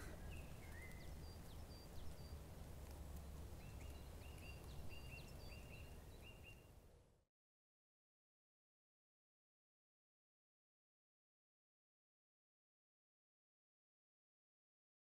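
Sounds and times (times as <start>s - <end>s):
small birds chirping: 0.0s - 6.9s.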